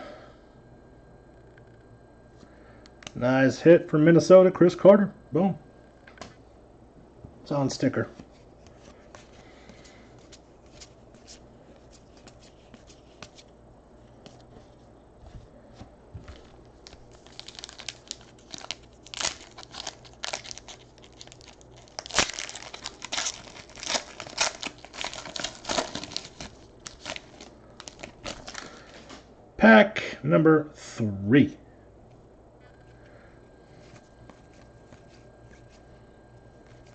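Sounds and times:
foil wrapper tearing and crinkling: 16.3 - 29.1.

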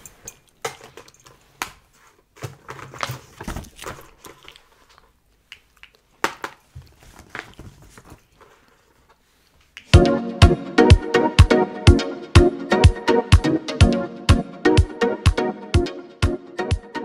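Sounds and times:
papers rustling: 0.0 - 9.8.

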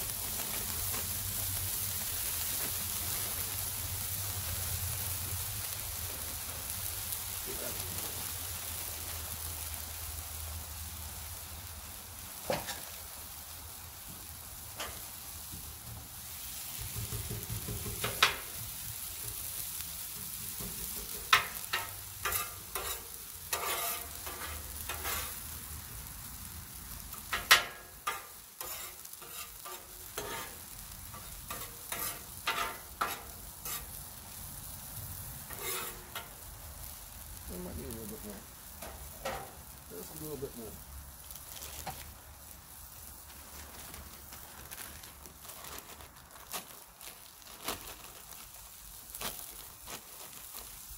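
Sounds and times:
hash browns sizzling on griddle: 0.0 - 50.9
metal spatula scraping griddle: 16.8 - 18.6, 20.1 - 25.5, 27.1 - 34.0, 35.4 - 36.4, 38.8 - 39.6.

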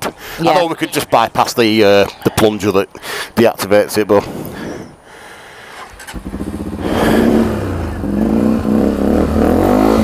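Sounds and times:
engine starter cranking: 5.7 - 6.4
motorcycle engine revving: 5.8 - 10.0.

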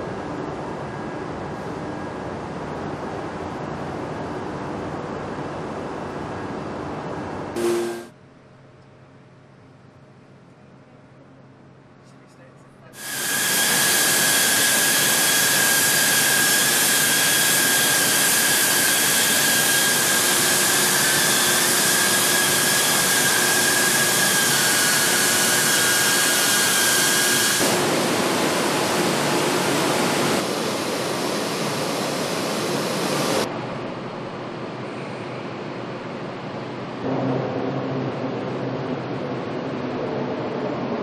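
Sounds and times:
high-pitched whine: 7.6 - 8.1.

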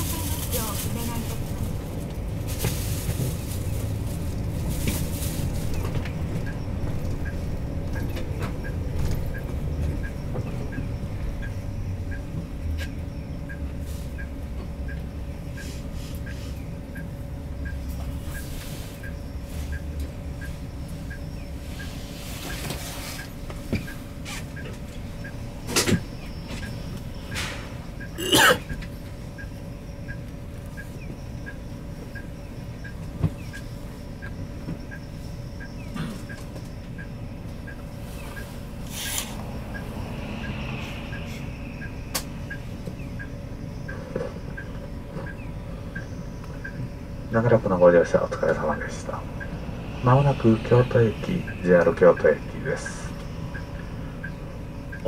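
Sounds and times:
coach engine rumbling: 0.0 - 55.0
light ticking: 51.2 - 55.0.

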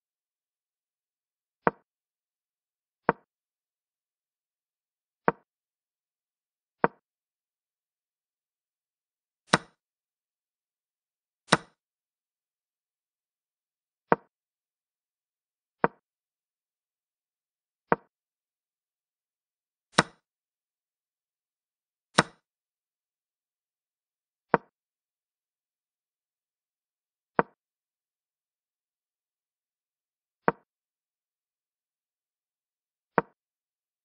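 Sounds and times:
wooden chess piece clicks: 9.5 - 9.8, 11.5 - 11.8, 22.2 - 22.4, 30.5 - 30.7.

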